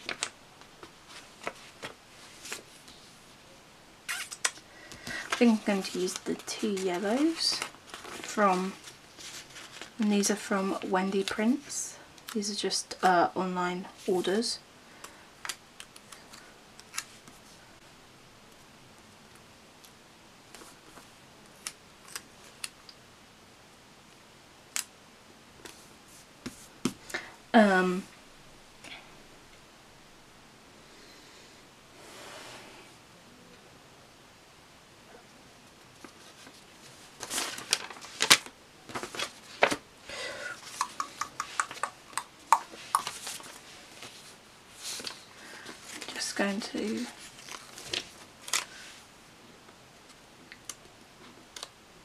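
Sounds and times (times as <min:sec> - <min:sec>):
paper rustling: 0:00.0 - 0:03.2, 0:04.2 - 0:10.3, 0:35.9 - 0:39.8, 0:42.7 - 0:49.0
faint steady hiss: 0:00.0 - 0:52.0
stickers peeling with crisp ticks: 0:40.6 - 0:43.6.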